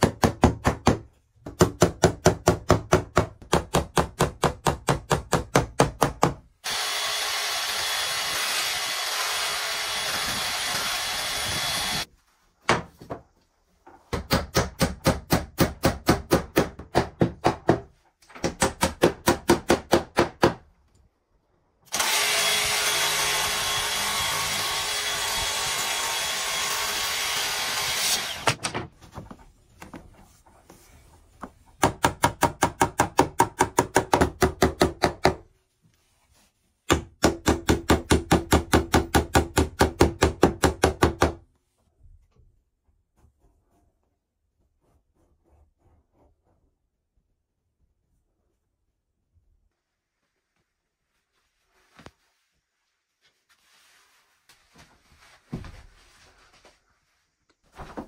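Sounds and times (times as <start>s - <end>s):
hammer tapping nails into wood: 31.8s - 35.4s, 36.9s - 41.4s.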